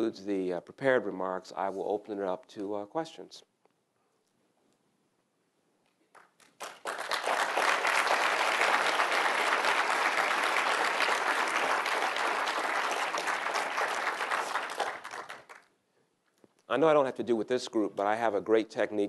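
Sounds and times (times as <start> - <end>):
audience applauding: 6.1 - 15.7.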